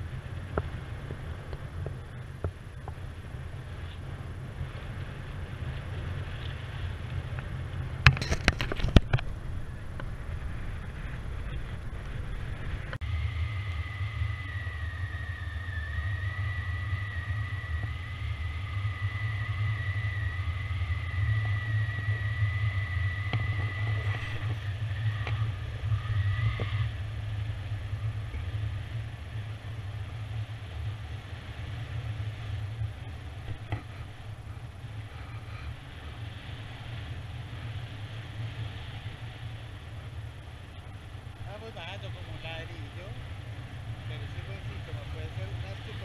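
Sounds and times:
wind rumbling on microphone: 0:00.0 - 0:46.0
thin high whistle: 0:13.1 - 0:27.0.

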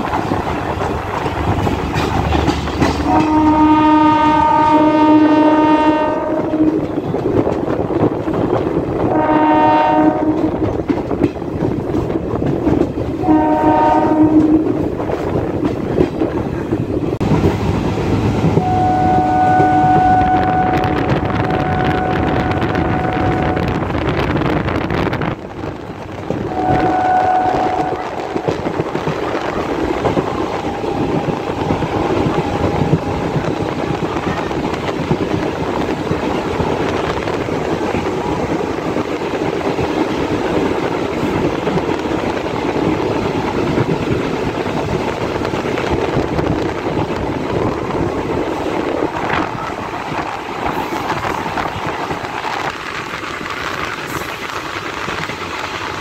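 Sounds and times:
train rumbling at speed: 0:00.0 - 0:56.0
train horn blasts: 0:03.0 - 0:07.1, 0:09.0 - 0:10.7, 0:13.2 - 0:14.8, 0:18.6 - 0:23.8, 0:26.5 - 0:28.7, 0:30.2 - 0:34.3.

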